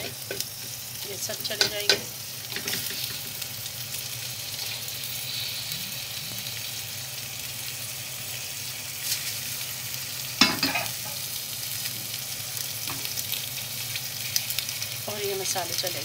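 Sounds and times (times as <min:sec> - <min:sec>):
meat and onions sizzling: 0:00.0 - 0:16.0.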